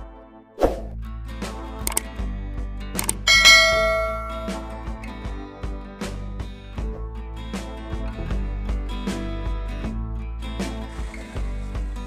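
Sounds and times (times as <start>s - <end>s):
background music: 0.0s - 12.0s
sharp clicks: 3.0s - 3.2s.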